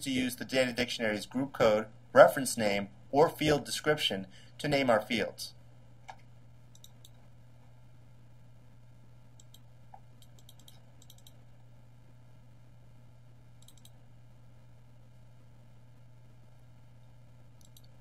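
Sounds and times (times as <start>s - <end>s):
computer mouse clicks: 6.0s - 7.2s, 9.4s - 11.4s, 13.6s - 14.0s, 17.6s - 18.0s.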